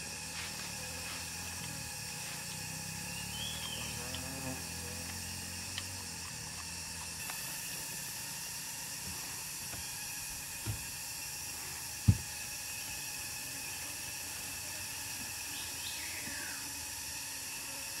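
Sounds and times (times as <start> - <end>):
insects droning: 0.0 - 18.0
dull thump: 12.0 - 12.3.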